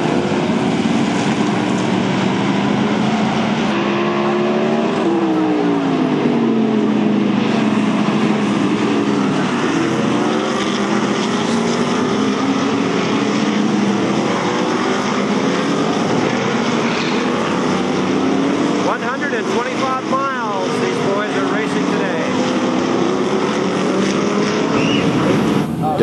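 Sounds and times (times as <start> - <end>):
race car engines accelerating: 0.0 - 26.0.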